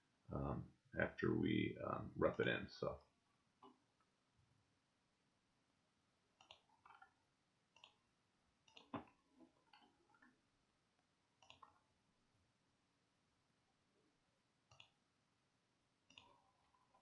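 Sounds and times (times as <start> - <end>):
computer mouse clicks: 6.4 - 8.0, 8.6 - 10.3, 11.4 - 11.8, 14.7 - 15.0, 16.1 - 17.0.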